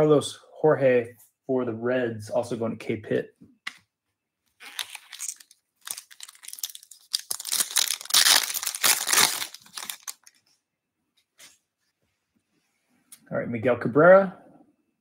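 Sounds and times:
foil wrapper tearing and crinkling: 4.6s - 10.4s.

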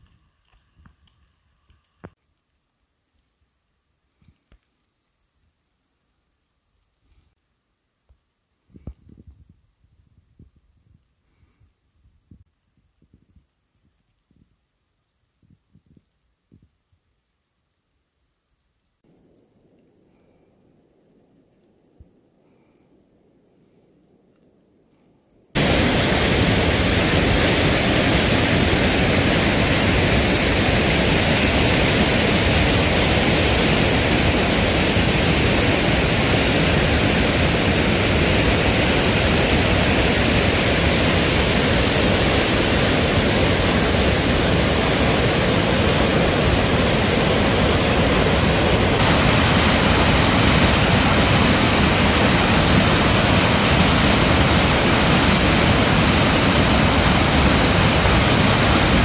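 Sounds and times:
rushing waterfall and rapids: 25.6s - 59.0s.

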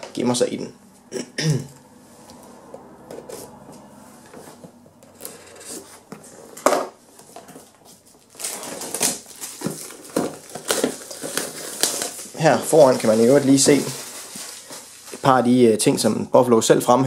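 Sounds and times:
faint rubbing and scraping: 2.0s - 6.6s
plastic film crinkling: 7.2s - 15.8s
scissors cutting shrink-wrap: 8.3s - 15.2s.

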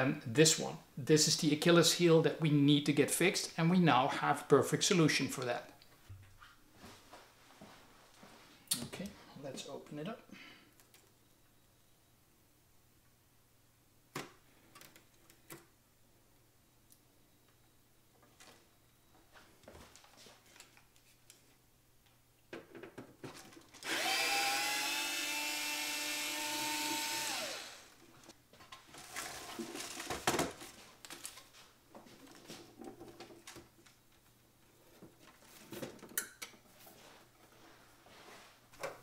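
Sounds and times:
electric screwdriver whine: 23.8s - 28.0s.

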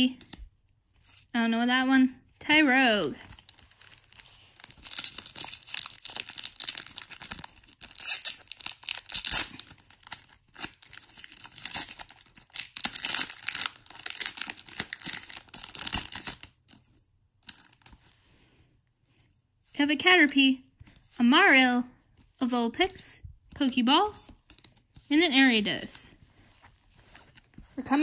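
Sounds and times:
foil wrapper tearing and crinkling: 3.2s - 16.6s.

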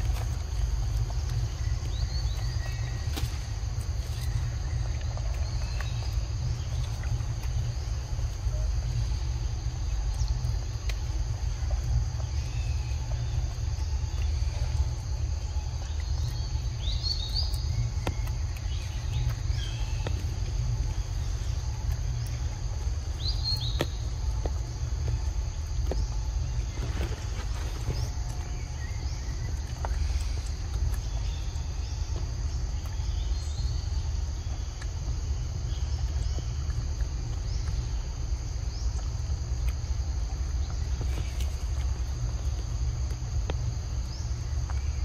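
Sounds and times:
high insect drone: 0.0s - 45.0s
bird chirps: 12.2s - 22.4s, 23.1s - 24.2s.

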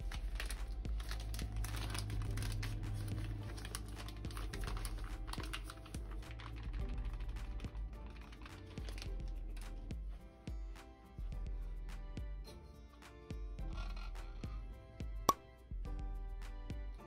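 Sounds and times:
flour packet crinkling: 0.0s - 9.9s.

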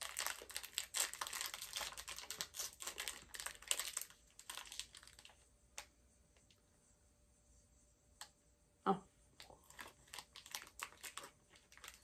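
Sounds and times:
foil wrapper crinkling: 0.0s - 5.9s, 9.4s - 12.0s.

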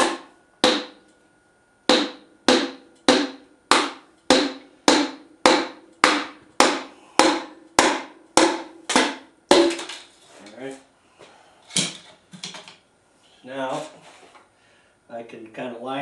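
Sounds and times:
wooden hammer knocking metal: 0.0s - 1.0s, 1.9s - 10.0s.

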